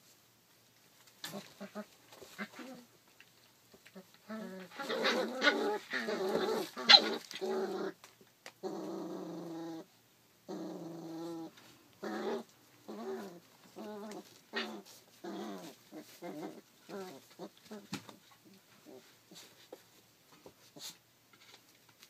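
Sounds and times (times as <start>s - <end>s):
puppies growling and crying: 3.9s - 8.0s, 8.6s - 9.9s, 10.5s - 17.8s.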